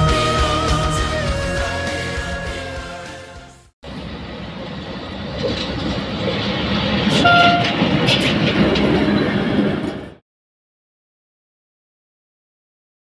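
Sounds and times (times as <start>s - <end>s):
diesel locomotive engine running: 0.0s - 10.2s
wheels rumbling on rails: 3.8s - 10.2s
brief high tone: 7.1s - 7.8s.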